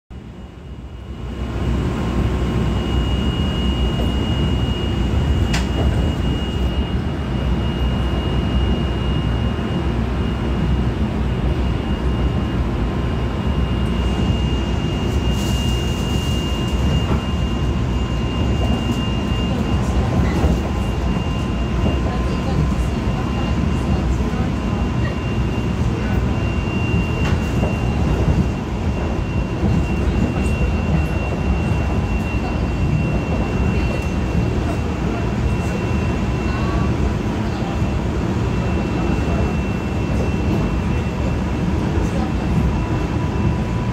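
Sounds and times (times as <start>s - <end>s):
train wheels rumbling on track: 0.2s - 43.9s.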